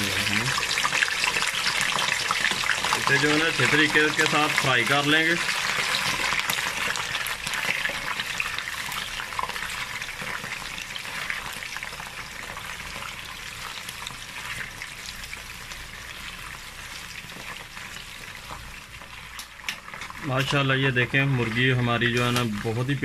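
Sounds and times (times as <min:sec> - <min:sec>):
chicken sizzling in hot oil: 0:00.0 - 0:23.0
wooden spatula stirring: 0:16.0 - 0:23.0.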